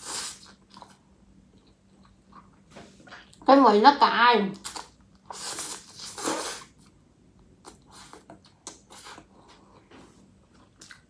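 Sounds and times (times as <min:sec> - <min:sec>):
chewing with small clicks: 0:00.5 - 0:02.6, 0:06.8 - 0:09.9, 0:10.5 - 0:11.0.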